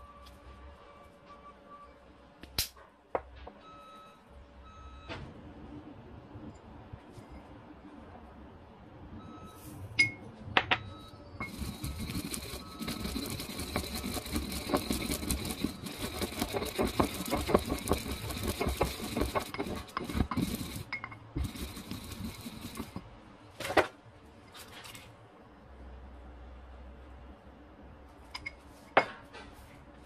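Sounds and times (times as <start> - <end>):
pestle grinding seeds in mortar: 11.4 - 23.2.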